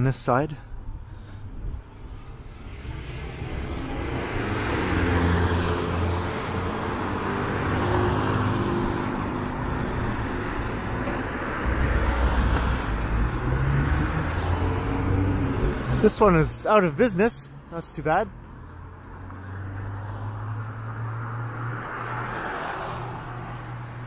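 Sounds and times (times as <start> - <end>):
car passing with tyre hiss: 2.1 - 10.0, 19.2 - 24.0.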